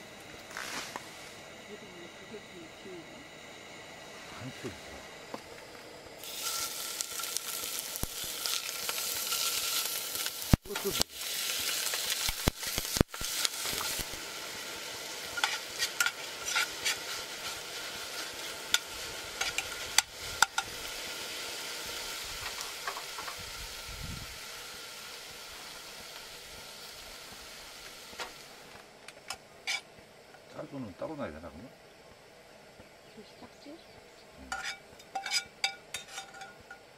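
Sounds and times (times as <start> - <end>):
meat sizzling in a frying pan: 6.2 - 28.9
utensil scraping a pan: 15.3 - 20.7, 29.6 - 29.9, 34.5 - 36.8.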